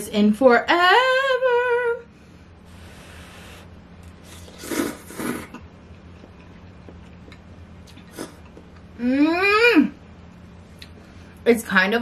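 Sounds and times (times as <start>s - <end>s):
person slurping noodles: 2.7s - 5.6s.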